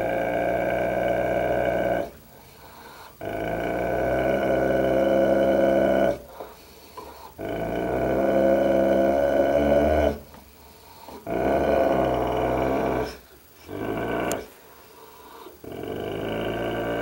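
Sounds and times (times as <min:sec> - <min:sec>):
dog growling deeply: 0:00.0 - 0:02.2, 0:03.2 - 0:06.4, 0:07.4 - 0:10.3, 0:11.1 - 0:14.5, 0:15.6 - 0:17.0.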